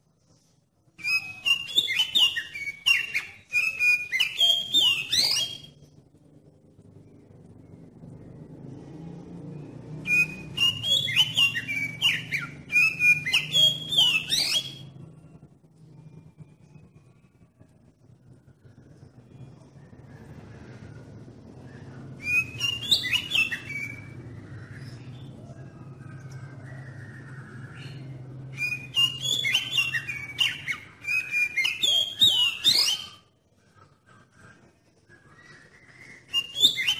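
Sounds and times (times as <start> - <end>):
faint low hum: 0.0 - 36.9
bird singing whistles: 1.0 - 5.8, 10.0 - 15.0, 21.6 - 25.3, 27.0 - 33.3, 34.4 - 36.9.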